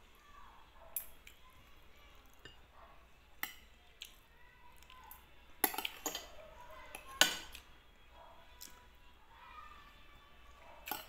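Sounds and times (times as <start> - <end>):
cutlery clinking on a plate: 3.4 - 3.8, 5.6 - 7.6.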